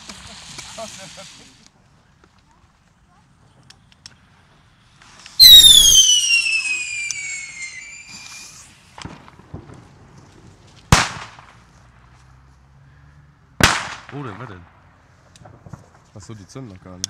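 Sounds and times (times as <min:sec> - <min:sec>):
falling firework whistle: 0:05.4 - 0:08.7
firecracker bang: 0:05.4 - 0:09.9, 0:13.6 - 0:14.2
firework bang: 0:05.4 - 0:09.9.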